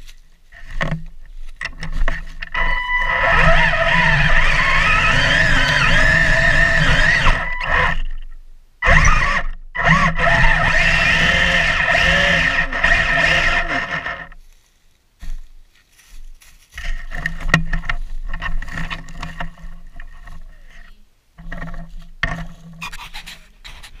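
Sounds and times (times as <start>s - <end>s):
tracks crackling over dry leaves: 0.0s - 7.3s, 13.0s - 21.0s
toy tank motor whining: 2.5s - 14.4s.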